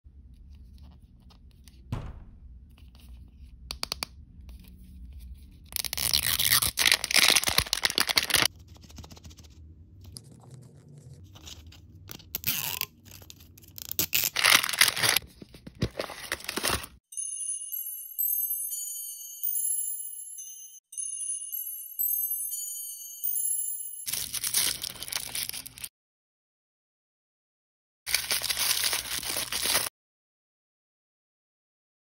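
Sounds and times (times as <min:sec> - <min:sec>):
plastic and foil crinkling: 0:05.7 - 0:09.1, 0:13.0 - 0:17.0, 0:24.1 - 0:25.9, 0:28.1 - 0:29.9.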